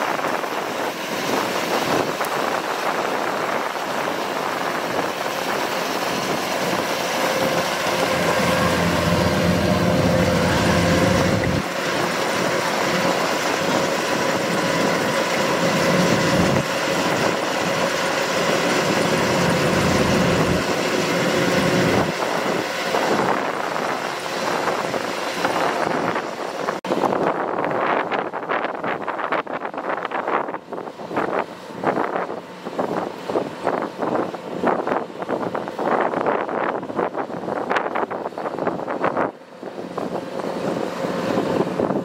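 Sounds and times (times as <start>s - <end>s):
combine harvester running: 0.0s - 27.8s, 38.6s - 42.0s.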